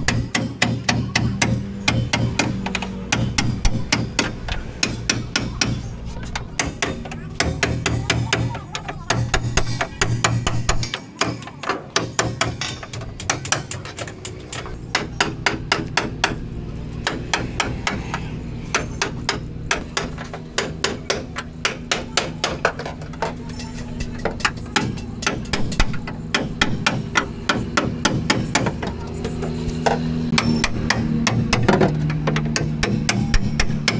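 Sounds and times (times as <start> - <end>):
hammer striking sheet metal: 30.3 - 33.9.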